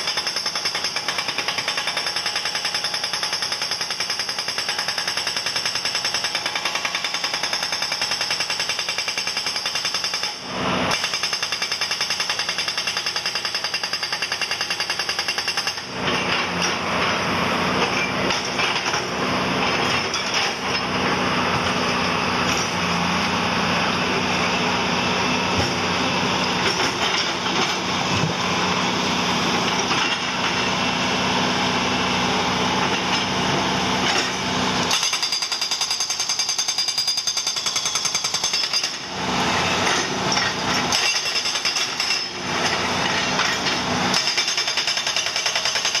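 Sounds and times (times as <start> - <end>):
rock drill hammering into stone: 0.0 - 16.8, 34.0 - 46.0.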